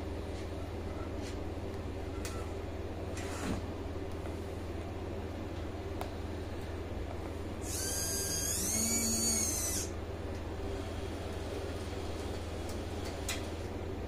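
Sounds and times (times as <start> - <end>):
low steady hum: 0.0 - 14.0
small servo motor whining: 7.6 - 9.9.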